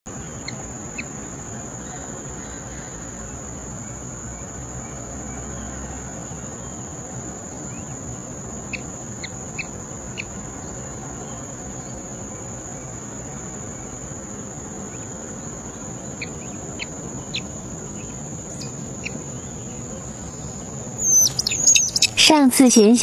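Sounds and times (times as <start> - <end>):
high-pitched insect trill: 0.1 - 22.9
soft background hiss: 0.1 - 23.0
short chirps: 21.0 - 22.3.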